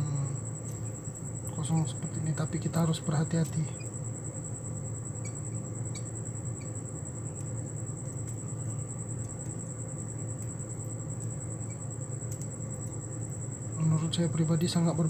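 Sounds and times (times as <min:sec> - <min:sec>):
insect trilling: 0:00.0 - 0:15.0
low steady hum: 0:00.0 - 0:15.0
small metallic ticks: 0:10.3 - 0:13.0.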